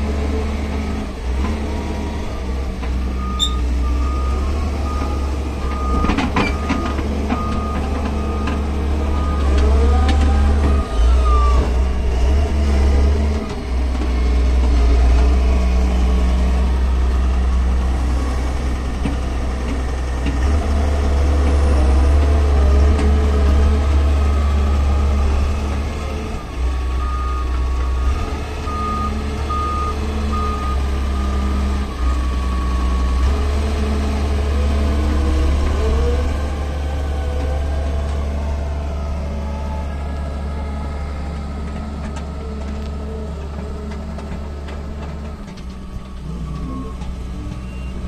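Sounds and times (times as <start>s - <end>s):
excavator diesel engine running: 0.0s - 48.0s
reversing alarm beeps: 3.2s - 9.6s, 28.7s - 31.5s, 46.5s - 48.0s.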